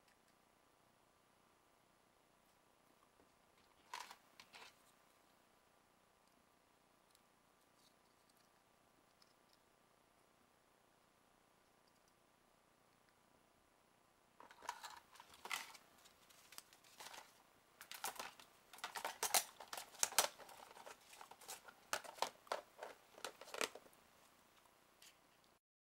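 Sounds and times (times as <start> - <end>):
plastic parts clicking and tapping: 14.4 - 15.8, 16.4 - 23.9
paper rustling: 14.4 - 23.9.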